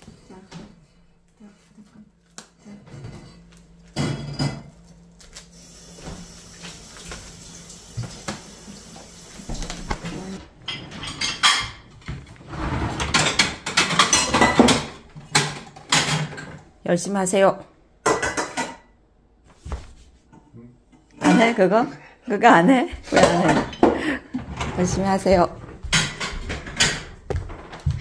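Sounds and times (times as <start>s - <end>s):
dishes and cutlery clattering: 2.9s - 4.8s, 10.6s - 12.1s, 12.9s - 16.7s, 18.0s - 19.0s, 21.2s - 21.6s, 23.1s - 25.0s, 25.8s - 27.2s.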